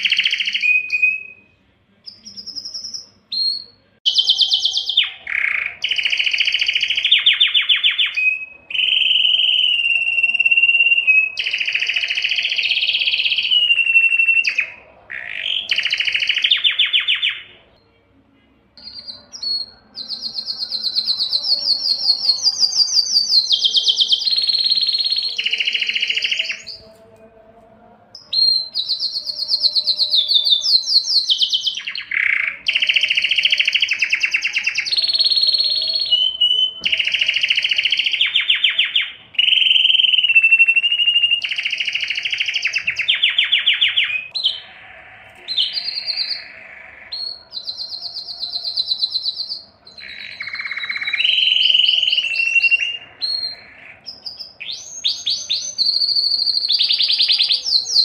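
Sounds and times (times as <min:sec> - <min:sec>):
canary singing fast trills: 0:00.0 - 0:18.1, 0:18.7 - 0:27.1, 0:28.1 - 0:58.0.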